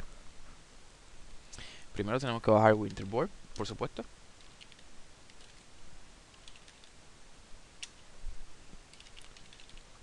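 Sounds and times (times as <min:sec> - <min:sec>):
keyboard typing clicks: 0:04.4 - 0:05.6, 0:06.4 - 0:06.9, 0:08.9 - 0:09.9.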